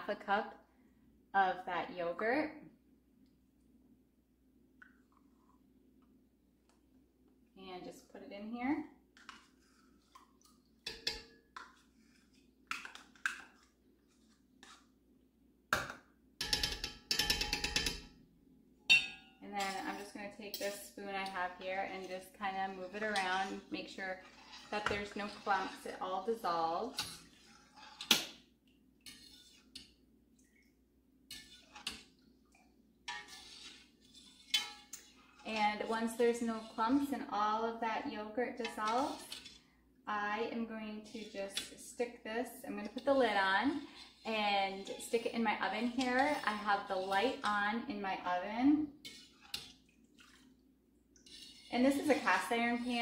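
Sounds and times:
spoon scraping and knocking: 9.2s - 14.9s, 16.4s - 18.1s, 29.0s - 30.0s, 31.3s - 32.2s, 33.1s - 37.0s, 49.0s - 50.4s, 51.2s - 53.0s
utensils knocking on pot and cup: 15.8s - 18.2s, 18.9s - 19.4s.

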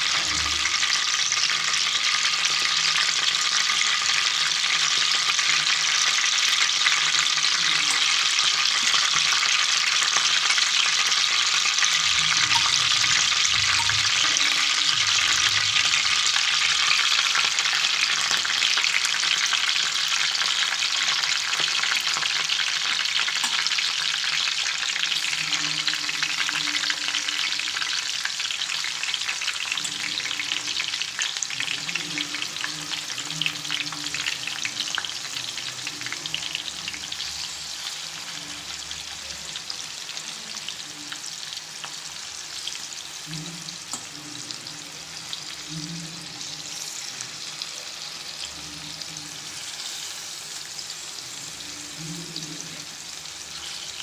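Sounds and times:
oil sizzling in a pan: 0.0s - 54.0s.

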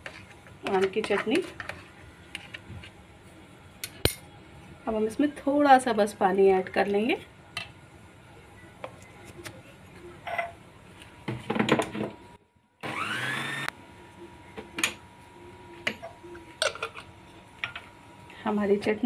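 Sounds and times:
mixer motor whine: 12.8s - 13.7s.

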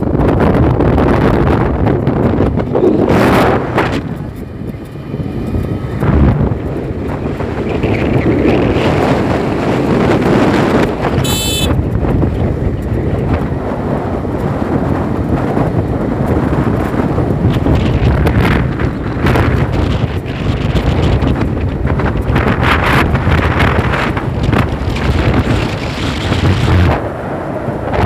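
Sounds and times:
vehicle running noise: 0.0s - 28.0s
wind buffeting microphone: 0.0s - 28.0s
high-pitched beep: 11.2s - 11.7s.

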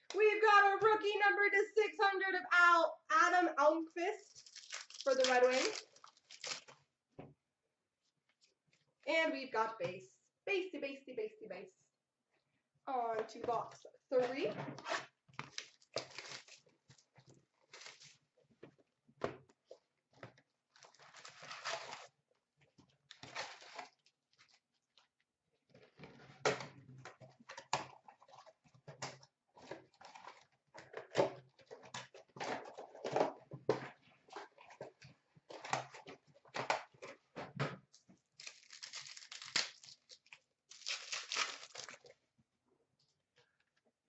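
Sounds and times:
wrappers crinkling and tearing: 4.3s - 6.8s, 15.4s - 16.7s, 17.7s - 18.2s, 20.8s - 22.1s, 38.4s - 42.1s.

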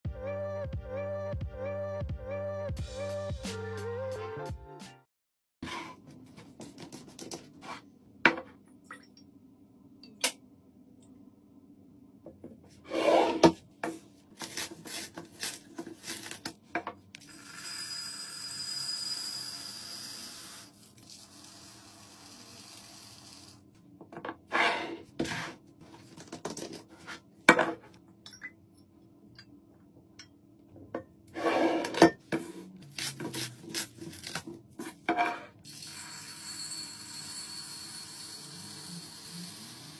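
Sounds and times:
beads pouring into glass bottle: 17.2s - 23.6s.

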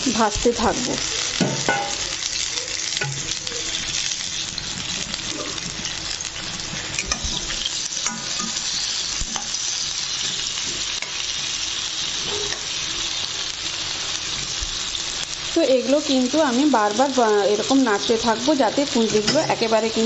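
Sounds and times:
vegetables sizzling in a pan: 0.0s - 20.0s
metal utensil scraping a pan: 6.8s - 11.3s, 12.2s - 12.8s, 18.9s - 19.8s.

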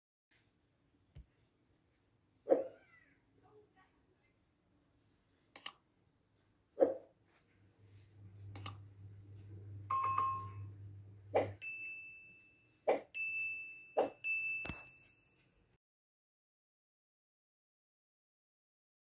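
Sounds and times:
mouse clicks: 5.5s - 5.8s, 8.5s - 8.8s
steady high tone: 8.1s - 12.7s
bell-like chime: 9.9s - 10.8s, 11.6s - 15.7s.

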